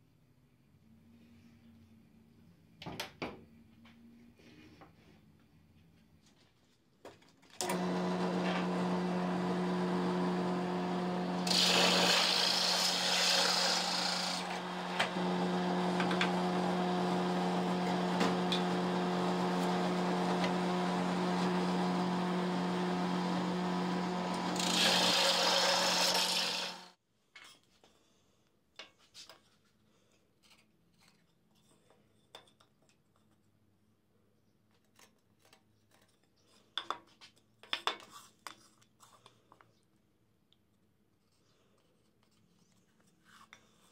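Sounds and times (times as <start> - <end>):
drill bit cutting wood hiss: 7.6 - 26.9
drill press running: 7.6 - 26.9.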